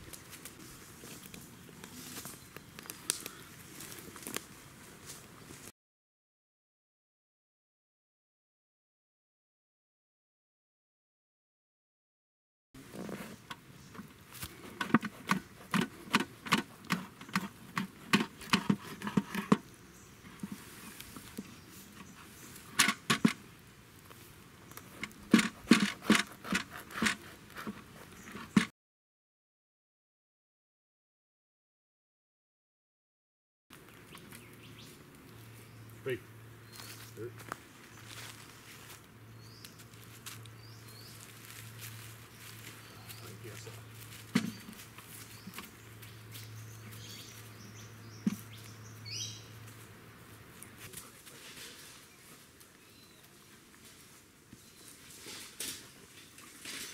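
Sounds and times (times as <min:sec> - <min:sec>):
birds chirping: 0:13.3 - 0:28.7, 0:33.7 - 0:51.2, 0:51.9 - 0:55.1
knife sawing crusty bread: 0:25.5 - 0:27.7.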